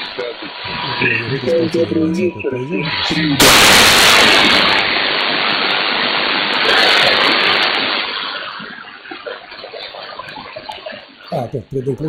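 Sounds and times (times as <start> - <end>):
faint wavering radio signals: 0.0 - 12.0
shortwave receiver hissing: 0.0 - 12.0.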